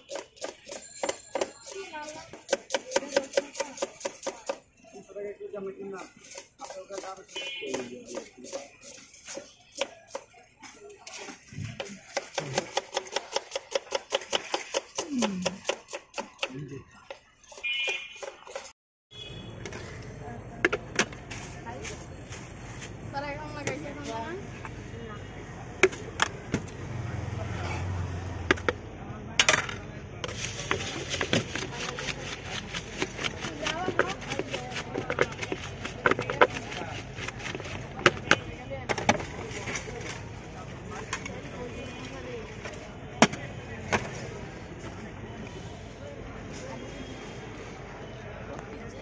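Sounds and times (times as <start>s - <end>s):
knife chopping on wooden board: 11.8s - 16.5s
spoon scraping in plastic mug: 30.2s - 38.5s.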